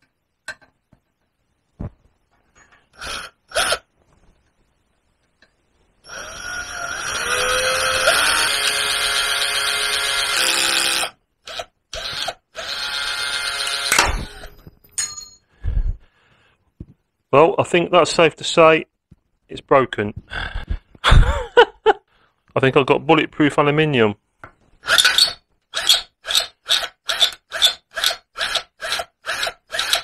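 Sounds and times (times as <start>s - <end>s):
cordless drill whining: 6.0s - 14.6s, 24.8s - 30.0s.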